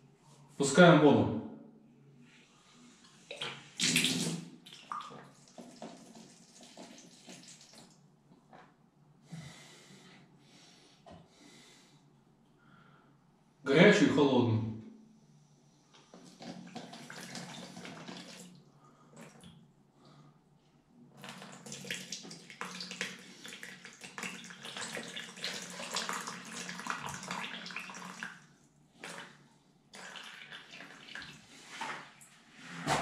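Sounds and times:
water rushing into plastic bucket: 3.3s - 7.9s, 16.2s - 19.5s, 21.2s - 28.4s, 29.0s - 29.4s, 30.0s - 32.1s.

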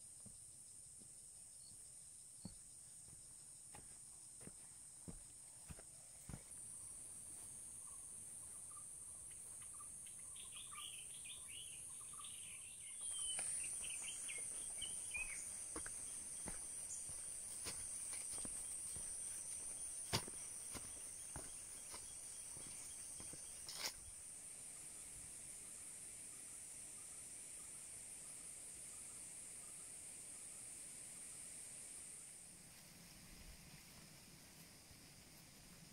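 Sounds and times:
insects droning: 0.0s - 35.9s
footsteps crunching on dirt: 2.4s - 8.7s, 13.0s - 24.1s
bird chirping: 7.8s - 23.9s.

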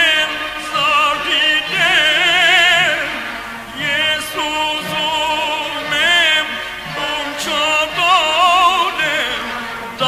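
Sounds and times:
song from a vinyl record: 0.0s - 10.0s.

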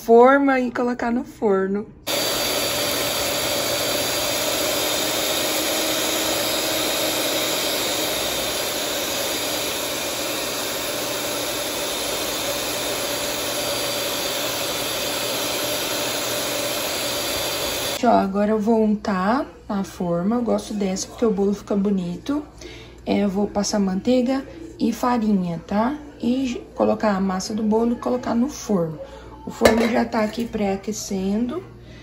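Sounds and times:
electric hand mixer whining: 2.1s - 18.0s.

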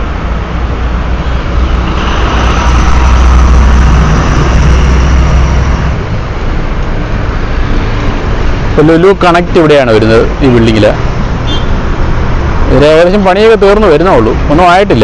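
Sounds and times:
vehicle passing: 0.0s - 8.8s
traffic noise: 0.0s - 15.0s.

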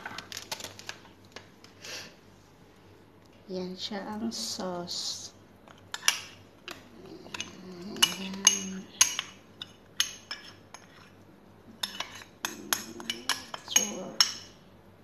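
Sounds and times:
metal utensil clinking on glass bowl: 11.8s - 14.5s.

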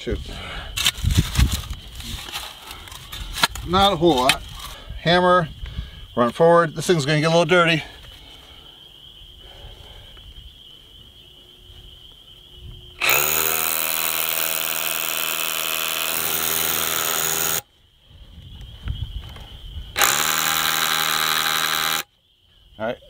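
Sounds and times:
rotary hammer drilling into concrete: 13.0s - 17.6s, 20.0s - 22.1s.

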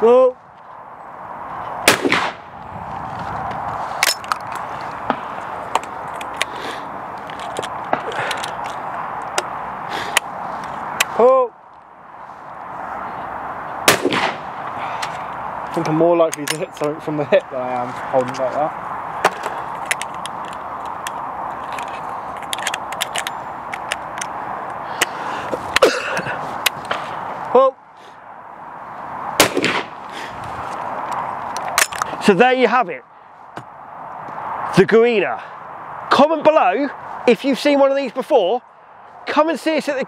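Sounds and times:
metal clicks and scrapes of shotgun action: 4.0s - 4.7s, 7.2s - 9.5s, 19.3s - 24.3s, 31.1s - 32.2s.

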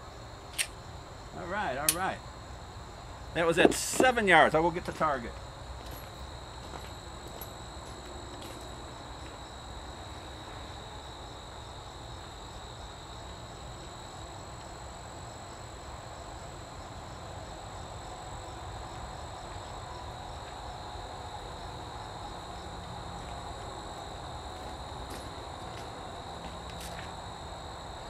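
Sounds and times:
insects trilling: 0.0s - 28.0s.

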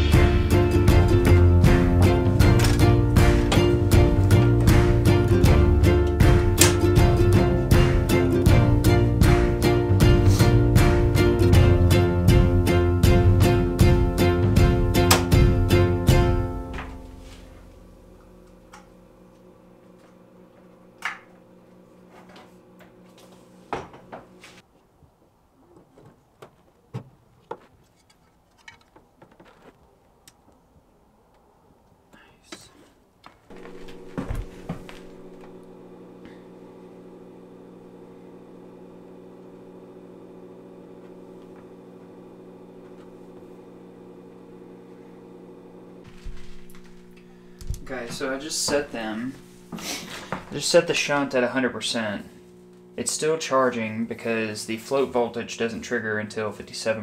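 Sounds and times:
inverter electrical hum: 0.0s - 24.7s, 31.1s - 57.0s
faint electrical hum: 40.8s - 57.0s.

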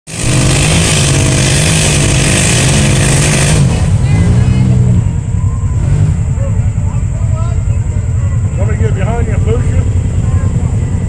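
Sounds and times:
engine revving: 0.1s - 6.6s.

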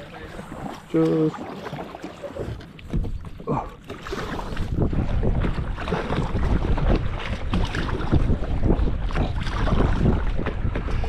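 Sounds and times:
paddle splashing water: 0.0s - 11.0s
wind buffeting microphone: 2.4s - 11.0s.

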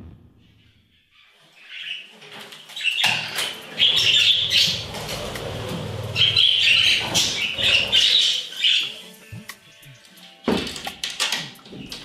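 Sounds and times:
budgies chirping: 1.1s - 9.2s.

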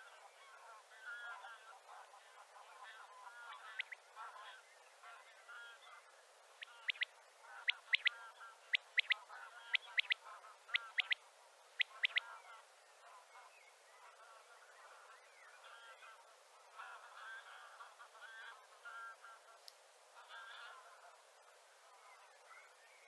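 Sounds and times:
soft chattering bird calls: 2.7s - 16.2s
quail three-note call: 11.8s - 12.6s.

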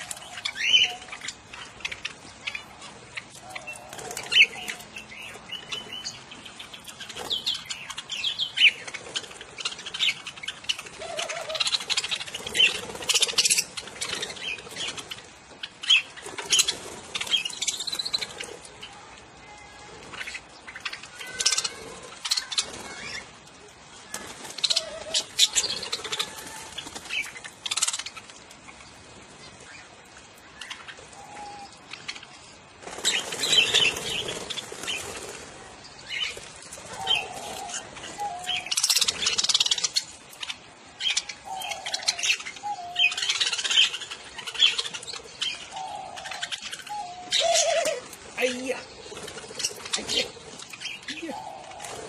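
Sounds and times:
budgerigars chirping: 0.0s - 18.6s, 36.1s - 52.0s
wings flapping: 0.0s - 52.0s.

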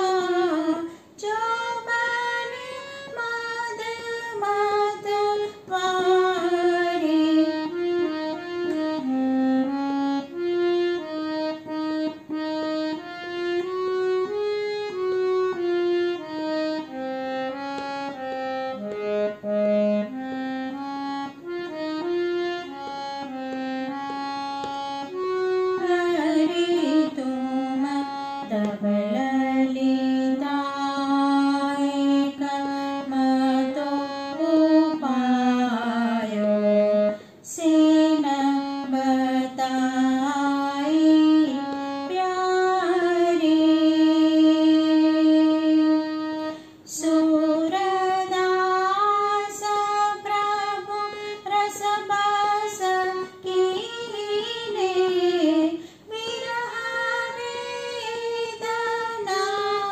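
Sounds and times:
woman singing: 0.0s - 8.1s, 25.7s - 59.9s
harmonium melody: 0.0s - 59.9s.

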